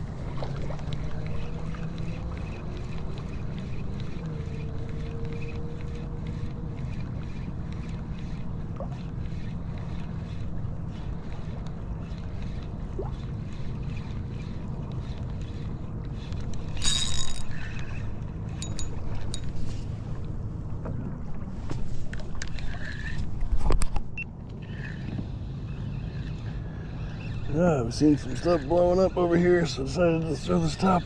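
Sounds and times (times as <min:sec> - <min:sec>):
water lapping against kayak hull: 0:00.0 - 0:16.9, 0:17.5 - 0:31.0
loud clatter with high ring: 0:16.8 - 0:17.8.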